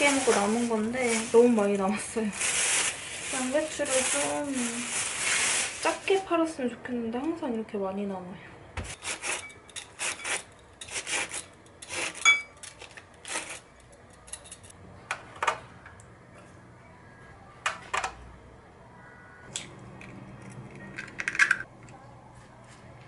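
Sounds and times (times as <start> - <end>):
cabbage scraping on a slicer: 8.9 - 12.3, 13.2 - 13.7.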